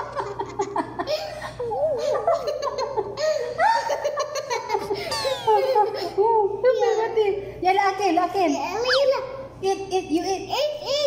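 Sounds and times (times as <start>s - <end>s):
little girl laughing: 0.0s - 6.2s.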